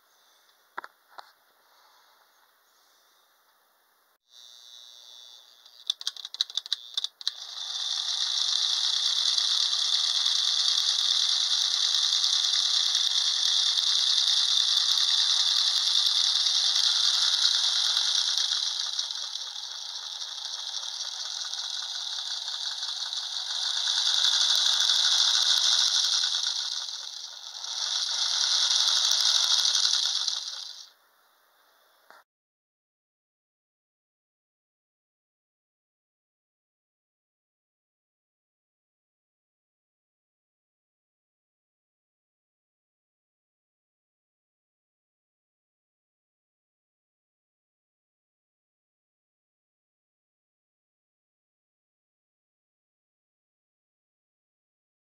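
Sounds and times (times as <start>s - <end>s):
toy train motor whirring rattle: 4.2s - 30.9s
sharp clicks: 5.6s - 30.9s.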